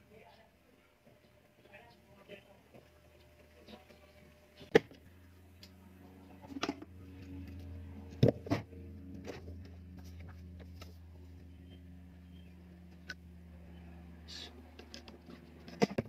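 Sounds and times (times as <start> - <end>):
low steady hum: 0.0 - 16.0
sharp clicks and knocks: 14.7 - 16.0.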